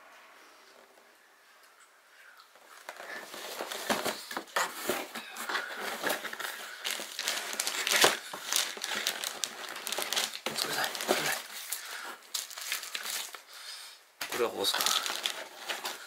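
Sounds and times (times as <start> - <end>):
packaging crinkling and rustling: 2.6 - 13.6, 14.2 - 16.0.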